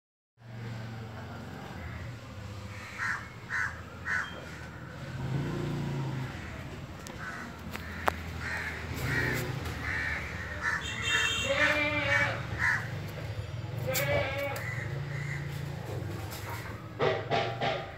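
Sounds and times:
bird calling: 2.7 - 5.0.

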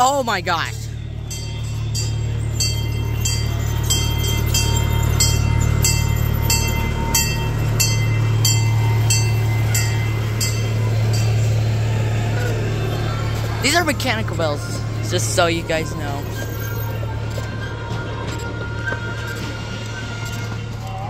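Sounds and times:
steady low hum: 0.0 - 21.0
electronic crossing bell ringing: 1.1 - 12.3.

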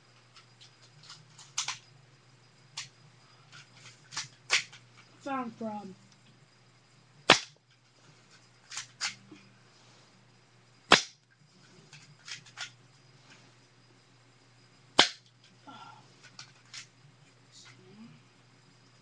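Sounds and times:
airsoft pistol firing snaps: 7.3 - 7.6, 10.9 - 11.2, 15.0 - 15.3.

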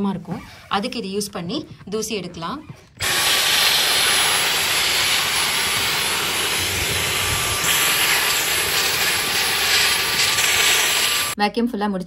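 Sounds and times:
stick vacuum running: 3.0 - 11.4.

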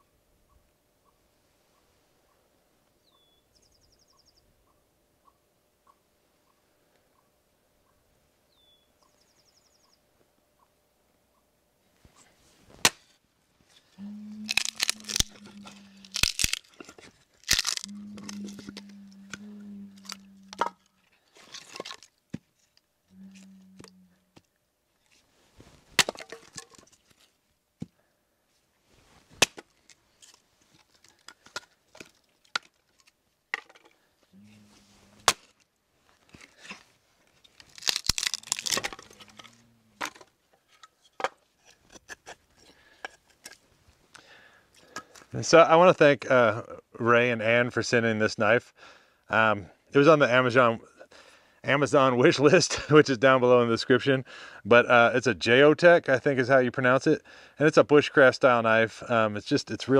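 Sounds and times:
hatchet chopping wood: 12.8 - 13.0, 26.0 - 26.4, 29.4 - 29.7
wood cracking and splitting: 14.4 - 18.9, 20.0 - 22.4, 26.0 - 27.2, 35.2 - 35.6, 36.2 - 41.4.

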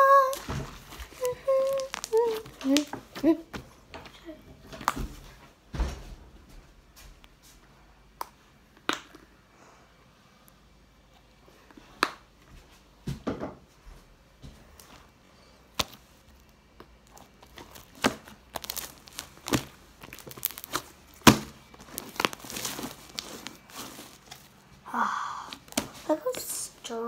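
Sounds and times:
slime squelching and popping: 0.1 - 3.4, 8.1 - 9.4, 15.6 - 24.6, 25.5 - 26.6.

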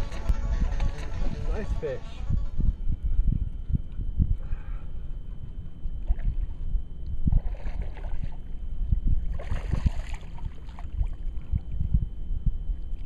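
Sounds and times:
low rumble: 0.0 - 13.0
fish splashing at water surface: 9.3 - 11.1.

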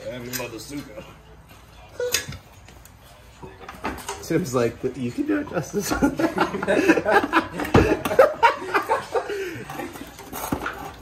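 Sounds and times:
people laughing and chattering: 4.4 - 10.8.

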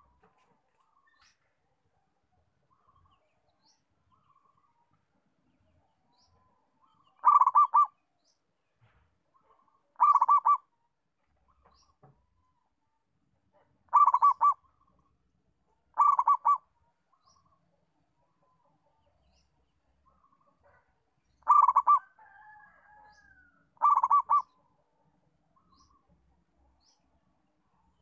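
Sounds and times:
dove staccato cooing: 7.2 - 7.9, 10.0 - 10.6, 13.9 - 14.6, 15.9 - 16.7, 20.6 - 22.2, 23.8 - 24.5
wavering dove call: 7.2 - 8.0, 10.0 - 10.7, 13.9 - 14.7, 15.9 - 16.7, 21.4 - 22.6, 23.8 - 24.5.

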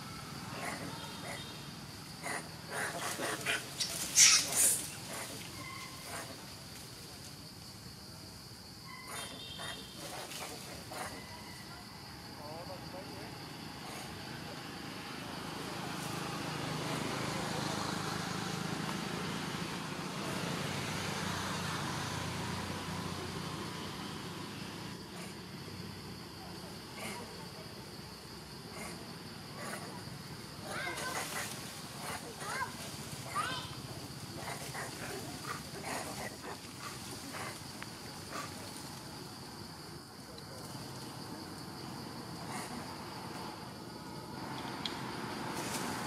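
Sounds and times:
road traffic hum and hiss: 0.0 - 46.0
short animal calls: 2.2 - 6.4.

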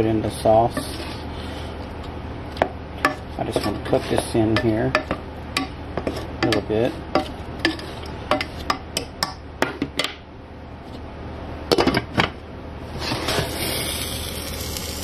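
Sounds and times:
spatula scraping in saucepan: 0.6 - 2.0, 3.0 - 5.1, 6.0 - 8.8
meat sizzling under lid: 13.0 - 15.0.

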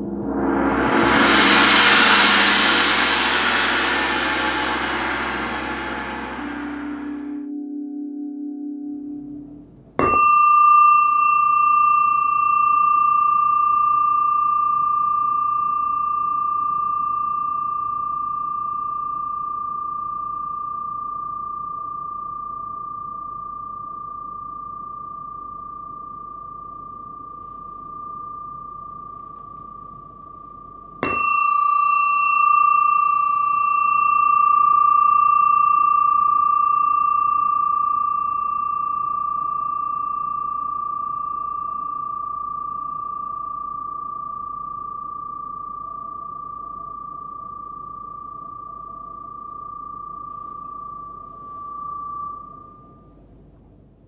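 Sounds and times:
brass bell struck with mallet: 0.0 - 45.8.

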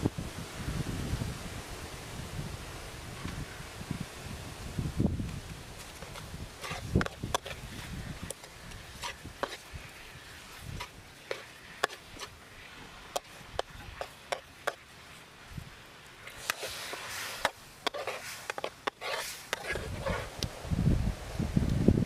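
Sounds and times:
metal ladle scraping steel wok: 5.9 - 14.8, 16.2 - 20.3.

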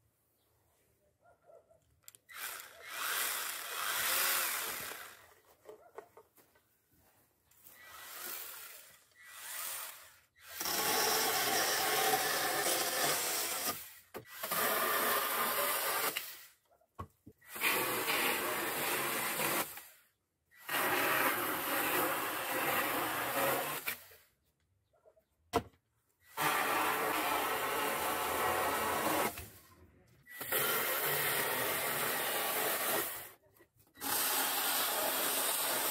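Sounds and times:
chainsaw cutting wood: 2.3 - 5.4, 7.6 - 16.6, 17.4 - 20.0, 20.6 - 24.2, 26.3 - 29.6, 30.3 - 33.4, 34.0 - 35.9.

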